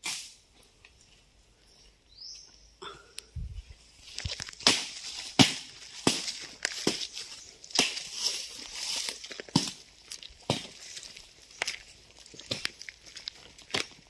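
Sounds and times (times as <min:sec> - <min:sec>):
footsteps on dry leaves: 0:03.6 - 0:14.0.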